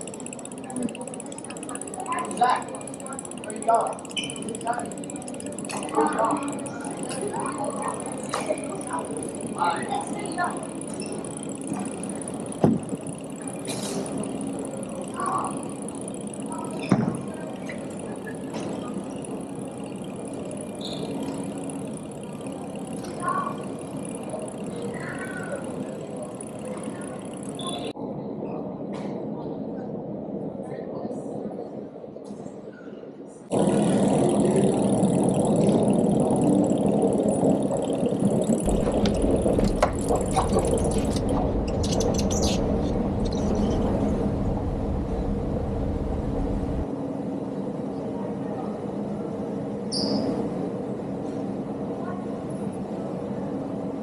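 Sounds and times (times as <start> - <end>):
machinery running noise: 0.0 - 28.0, 33.5 - 48.1
traffic hum: 33.5 - 46.9
high whine: 33.5 - 47.0
deep rumble: 33.6 - 46.9.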